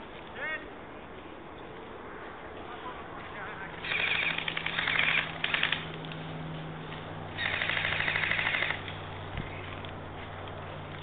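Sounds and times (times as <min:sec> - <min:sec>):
airsoft rifles firing bursts: 0:03.8 - 0:05.9, 0:07.4 - 0:09.0.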